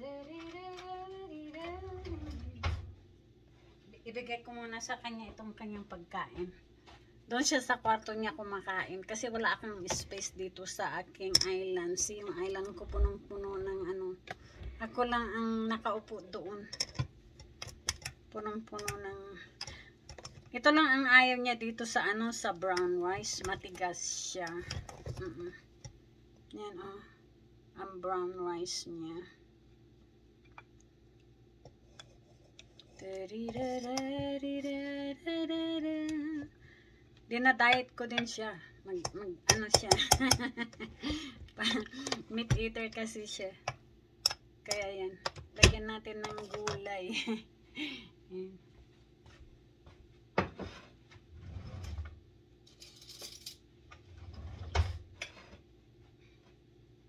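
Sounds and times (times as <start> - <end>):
woman singing long notes: 0.0 - 2.7.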